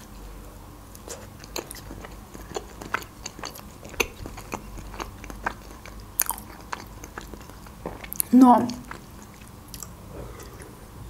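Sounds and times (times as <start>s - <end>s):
person chewing pizza: 0.0s - 10.9s.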